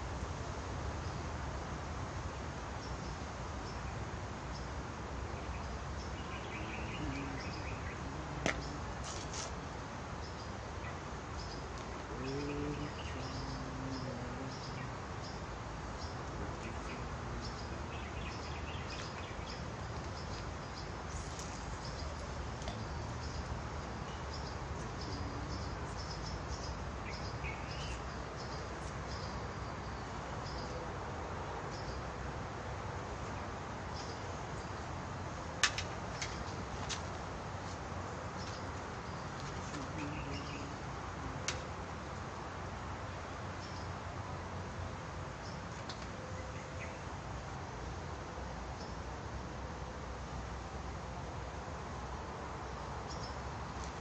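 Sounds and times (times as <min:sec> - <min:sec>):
steady background hiss: 0:00.0 - 0:54.0
small birds chirping: 0:02.8 - 0:30.8, 0:35.6 - 0:42.2.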